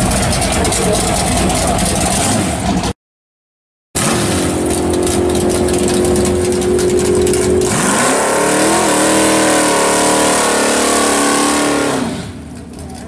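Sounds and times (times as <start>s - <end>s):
car engine revving: 0.0s - 3.0s, 4.0s - 13.0s
tyres spinning: 4.0s - 10.8s.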